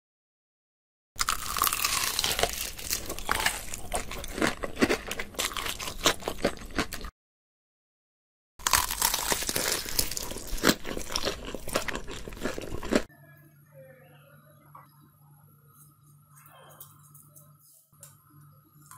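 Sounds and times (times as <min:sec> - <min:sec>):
fried crust crunching: 0:01.2 - 0:07.1, 0:08.6 - 0:13.1.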